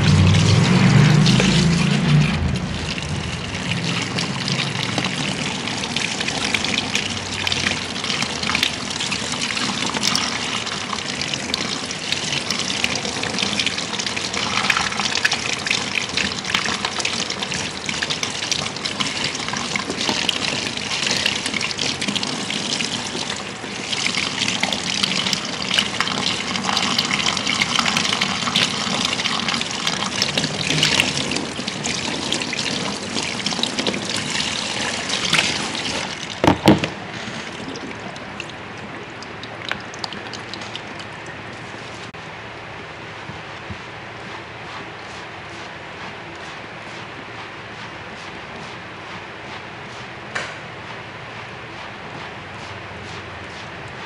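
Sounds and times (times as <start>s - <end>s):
shower spray hissing and splashing: 0.0s - 36.3s.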